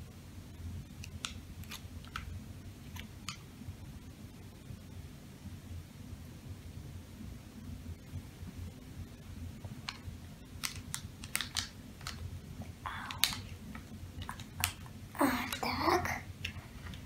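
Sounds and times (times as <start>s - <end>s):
plastic sachet crackling: 10.6s - 12.2s, 12.9s - 15.7s.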